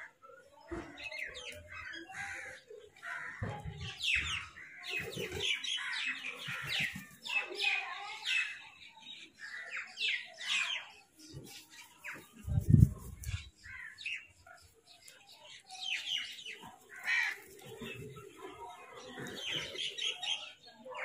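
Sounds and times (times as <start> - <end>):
crows calling: 2.0 - 3.6, 16.9 - 17.6.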